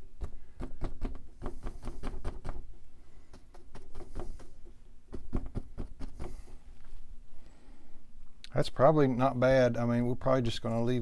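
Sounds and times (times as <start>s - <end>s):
brush tapping on canvas: 0.2s - 2.7s, 3.3s - 6.6s.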